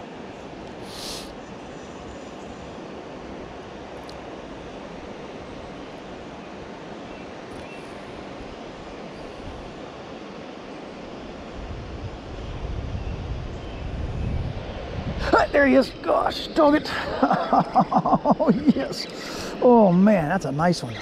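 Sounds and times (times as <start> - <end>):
river water rushing: 0.0 - 12.4, 14.5 - 21.0
wind buffeting microphone: 11.3 - 21.0.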